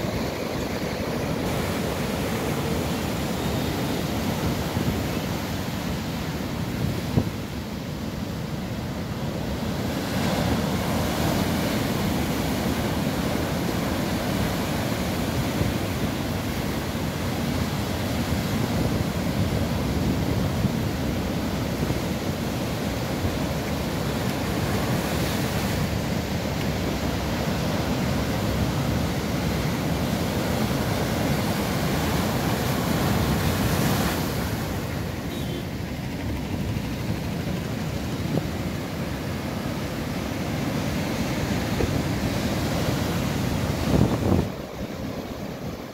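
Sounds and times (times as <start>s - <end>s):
wind buffeting microphone: 40.5s - 45.9s.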